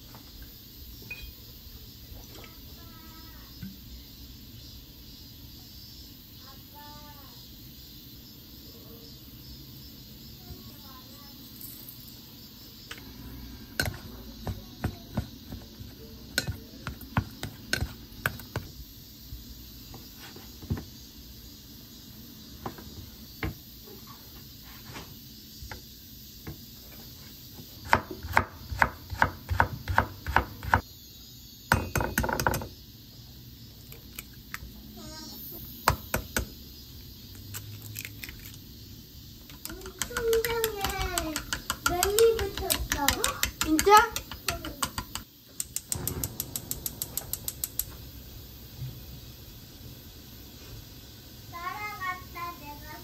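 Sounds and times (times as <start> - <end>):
knife chopping on wooden board: 27.8 - 30.8.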